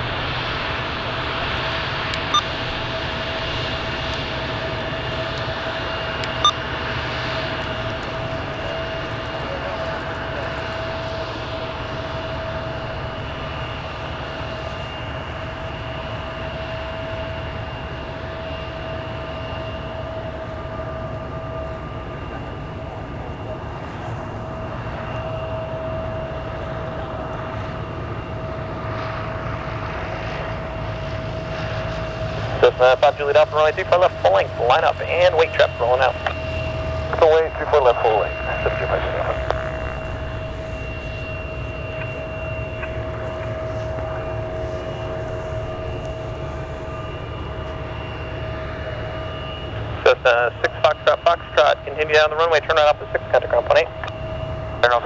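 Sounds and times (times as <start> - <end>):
jet engines idling with whine: 0.0 - 55.0.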